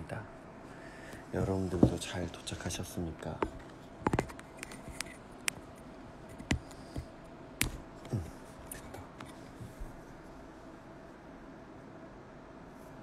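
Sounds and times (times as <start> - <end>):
faint room hum: 0.0 - 13.0.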